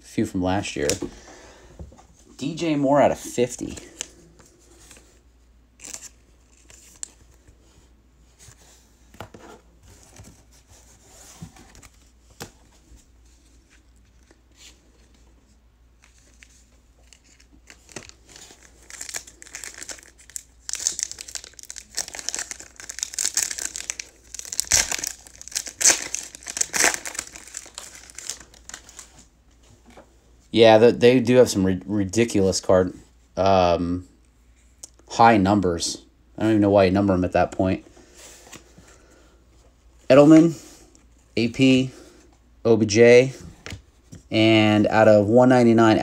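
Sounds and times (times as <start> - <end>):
foil wrapper tearing and crinkling: 17.8 - 29.0.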